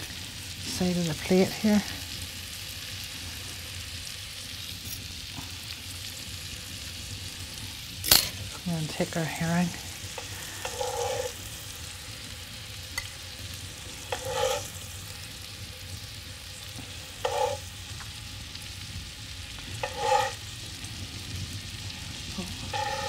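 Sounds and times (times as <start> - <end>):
fish sizzling in a frying pan: 0.0 - 23.0
knife scraping a pan: 10.1 - 11.4, 13.9 - 14.8, 17.1 - 17.7, 19.7 - 20.5, 22.6 - 23.0.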